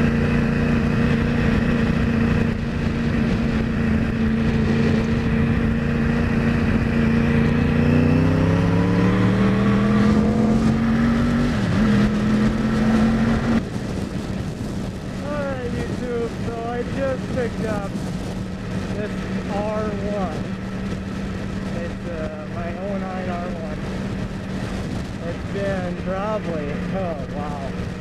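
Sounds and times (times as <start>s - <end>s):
motorcycle engine revving: 0.0s - 28.0s
wind noise: 0.0s - 28.0s.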